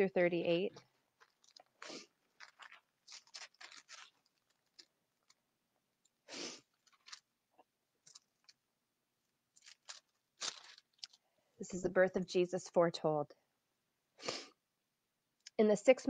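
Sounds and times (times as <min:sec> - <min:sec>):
thin pages rustling: 0:01.2 - 0:05.4, 0:06.7 - 0:07.3, 0:08.0 - 0:08.6, 0:09.5 - 0:11.2.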